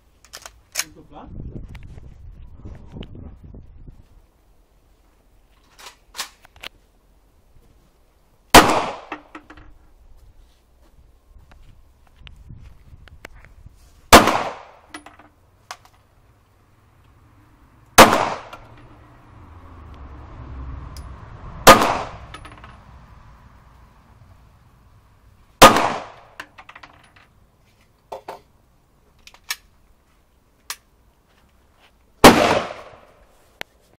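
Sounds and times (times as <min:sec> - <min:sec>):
small clicks and knocks: 0:00.2 - 0:00.9, 0:14.9 - 0:16.1, 0:29.1 - 0:29.7
pistol shots with echo: 0:08.6 - 0:09.1, 0:14.1 - 0:14.8, 0:18.0 - 0:18.6, 0:21.6 - 0:22.3, 0:25.6 - 0:26.4, 0:32.2 - 0:33.1.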